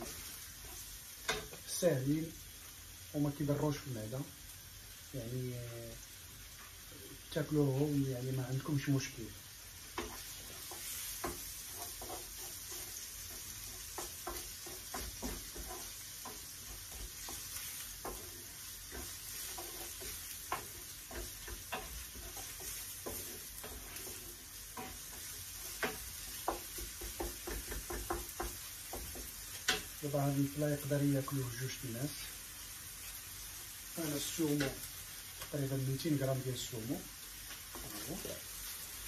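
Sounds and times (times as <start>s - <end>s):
wooden spoon scraping and knocking pan: 0.0s - 1.8s, 9.9s - 30.1s, 37.5s - 38.9s
food sizzling in a frying pan: 0.0s - 39.0s.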